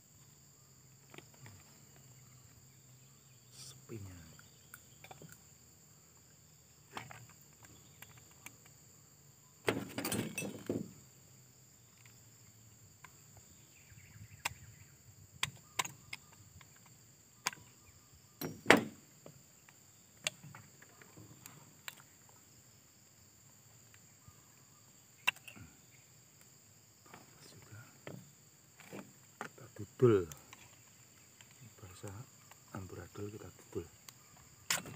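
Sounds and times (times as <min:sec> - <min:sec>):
tools and parts clicking and rattling: 0:04.7 - 0:05.4, 0:09.7 - 0:11.0, 0:18.4 - 0:18.9.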